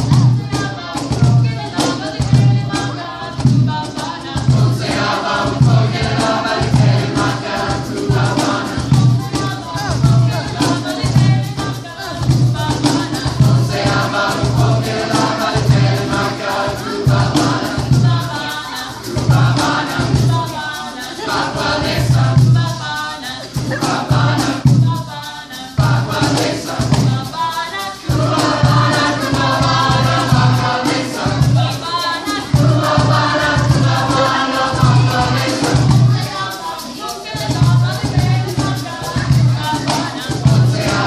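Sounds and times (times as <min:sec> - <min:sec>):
steady low drum beat: 0:00.0 - 0:20.6, 0:23.5 - 0:25.1, 0:28.1 - 0:36.4
choir singing call and response: 0:00.0 - 0:41.0
shaker: 0:00.0 - 0:41.0.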